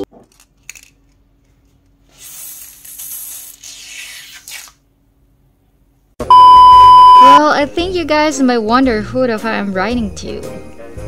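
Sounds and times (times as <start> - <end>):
loud electronic beep: 6.3 - 7.4.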